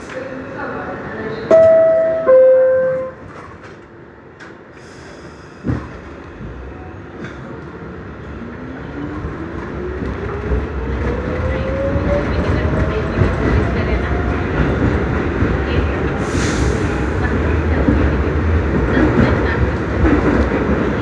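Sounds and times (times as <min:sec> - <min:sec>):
train rumble and motor whine: 0:00.0 - 0:21.0
two-tone door chime: 0:01.5 - 0:03.2.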